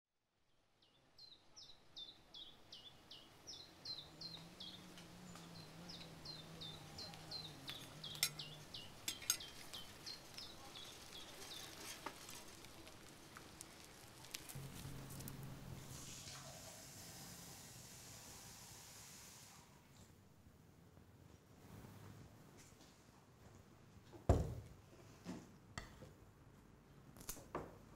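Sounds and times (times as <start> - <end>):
small bird chirping: 0.8 - 12.0.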